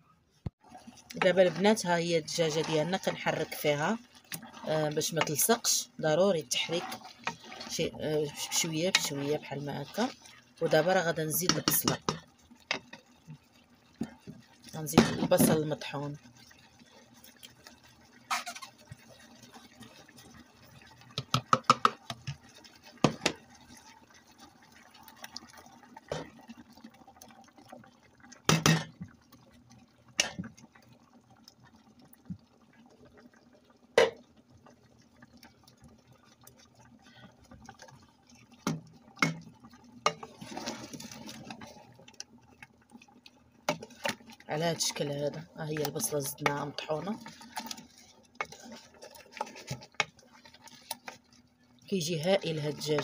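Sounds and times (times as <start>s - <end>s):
wet stirring: 0.4s - 53.0s
wet grated onion pouring and scraping: 0.6s - 12.8s, 40.0s - 42.3s, 43.6s - 53.0s
spoon knocking against pot: 21.2s - 22.0s.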